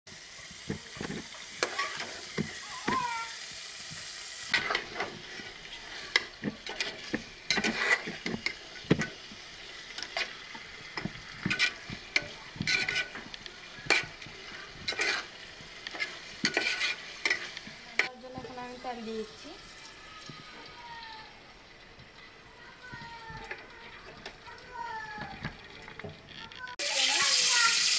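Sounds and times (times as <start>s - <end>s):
meat sizzling in oil: 0.1s - 27.9s
metal spatula scraping pot: 0.6s - 3.0s, 4.4s - 20.8s.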